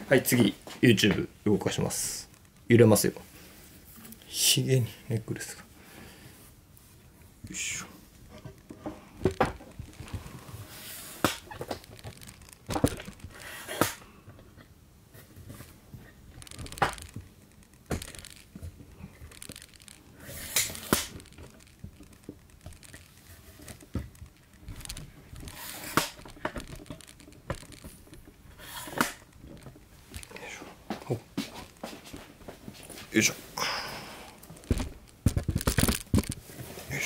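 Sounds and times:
camera handling knocks and clicks: 0:34.6 - 0:36.4.

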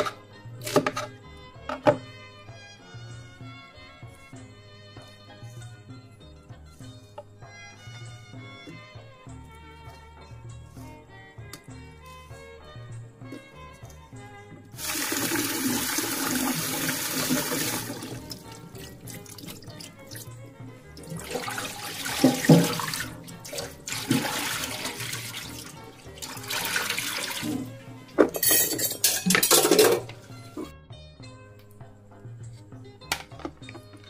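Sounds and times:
background music: 0:00.0 - 0:34.0
tap water running into sink: 0:14.8 - 0:20.3, 0:21.0 - 0:28.5
hands rinsing in water: 0:14.8 - 0:27.8
water splashing: 0:21.0 - 0:27.7.

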